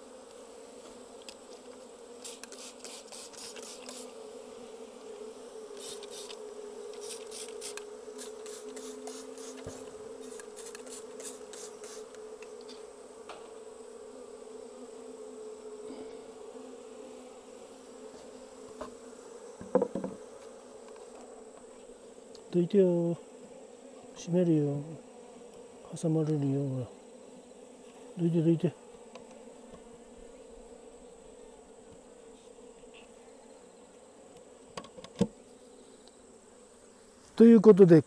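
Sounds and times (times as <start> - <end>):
bees buzzing: 0.0 - 38.0
spray bottle spritzes: 2.2 - 4.1, 5.8 - 6.4, 7.0 - 12.0
knocks: 19.6 - 20.2.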